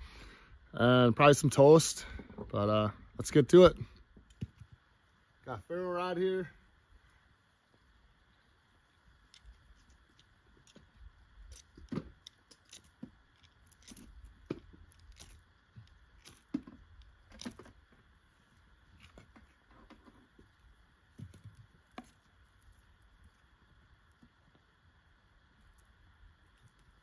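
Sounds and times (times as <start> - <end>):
ferro rod scrapes and clicks: 9.2 - 17.8.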